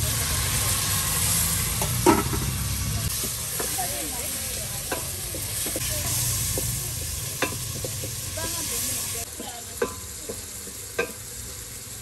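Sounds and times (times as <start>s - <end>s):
tomatoes sizzling in a pot: 0.0s - 12.0s
wooden spoon knocking a pot: 6.5s - 8.6s.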